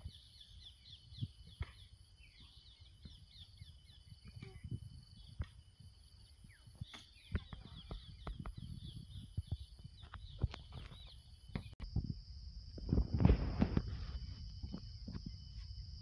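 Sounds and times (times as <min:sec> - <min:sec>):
birds chirping: 0:00.0 - 0:11.8
high insect drone: 0:00.0 - 0:16.0
low wind rumble: 0:02.8 - 0:16.0.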